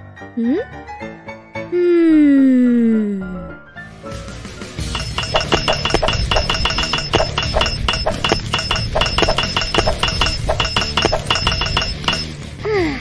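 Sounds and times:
hammer and chisel striking stone: 4.9 - 12.3.

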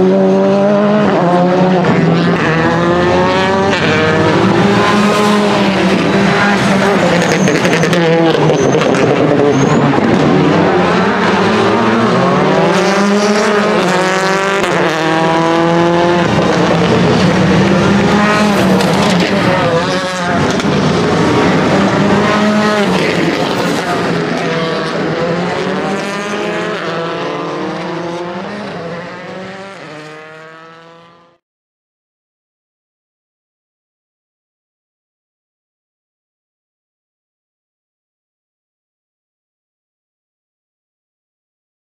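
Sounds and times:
rally car engine revving: 0.0 - 31.4.

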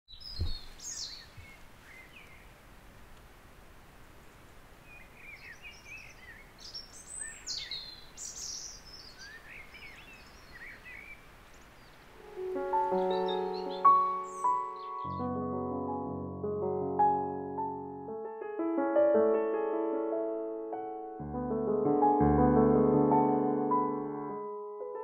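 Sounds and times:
small birds chirping: 0.1 - 2.7, 4.1 - 15.3
faint steady hiss: 0.1 - 15.1.

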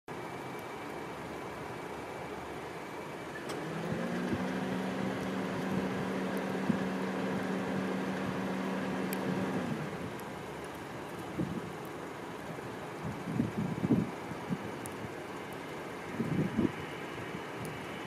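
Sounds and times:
background rumble: 1.1 - 18.0
crane hoist machinery hum: 2.8 - 10.0.

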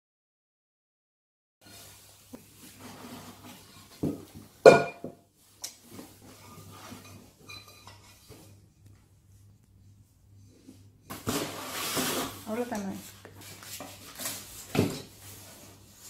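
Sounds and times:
pots knocking and clanking: 2.7 - 5.2, 5.9 - 8.6, 14.6 - 15.2.

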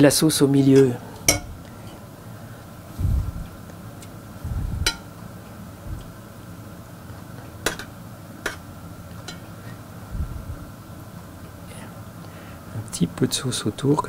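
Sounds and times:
metal spoon clinking on saucepan: 0.8 - 1.5, 9.2 - 9.5.

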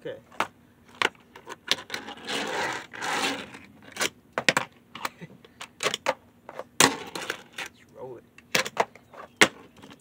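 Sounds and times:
fingerboard scraping across table: 1.8 - 3.7.

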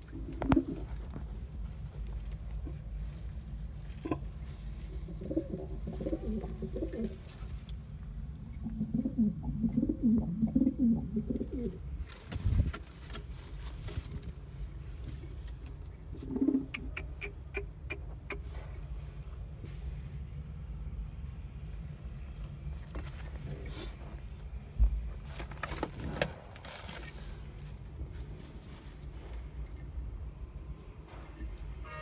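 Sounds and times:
pigeons cooing: 0.0 - 1.2, 4.8 - 7.2, 8.5 - 11.9, 16.1 - 18.5.

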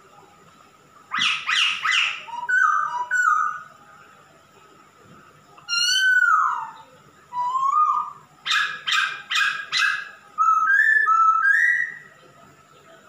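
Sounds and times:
bird whistled song: 1.1 - 3.7, 5.7 - 12.1.

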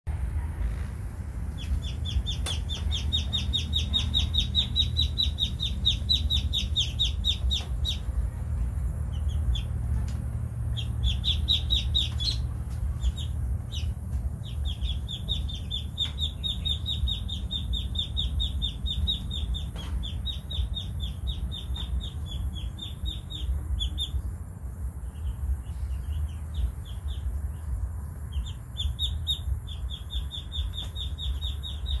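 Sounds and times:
low background rumble: 0.1 - 32.0
ducklings peeping: 1.4 - 32.0.

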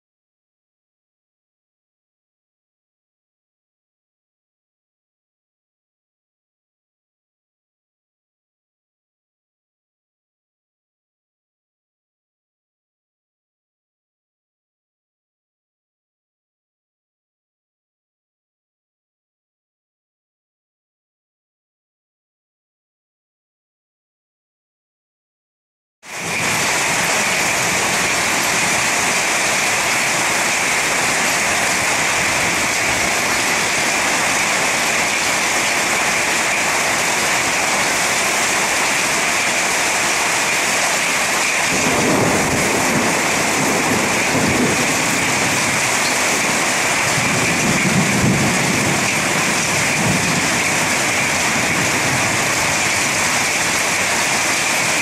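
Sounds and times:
heavy rain pouring: 26.0 - 55.0
low thunder rumble: 41.7 - 52.7.

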